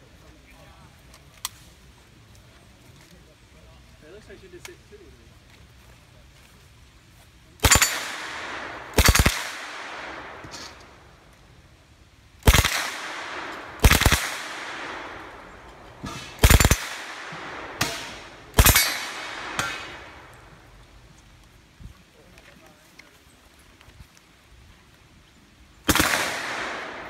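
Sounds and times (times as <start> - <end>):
gunshot echo: 7.6 - 11.0, 12.5 - 20.4, 25.9 - 27.0
submachine gun bursts: 16.4 - 16.9.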